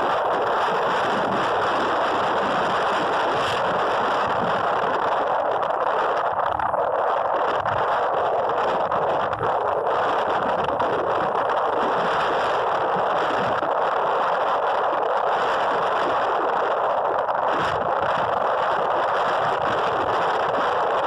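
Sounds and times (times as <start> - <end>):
wind noise on microphone: 0.0 - 21.0.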